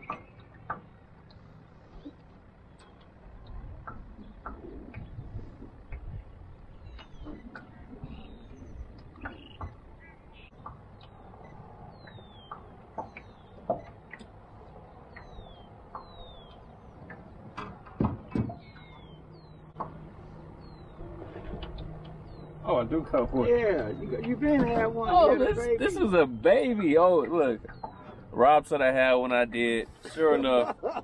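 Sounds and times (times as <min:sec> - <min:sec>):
birds whistling: 0:06.8 - 0:13.9, 0:15.0 - 0:17.0, 0:18.5 - 0:19.8.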